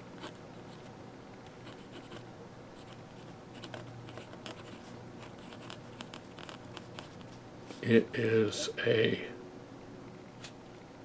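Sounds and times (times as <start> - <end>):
pen nib scratching on paper: 1.6 - 2.2, 2.8 - 7.3.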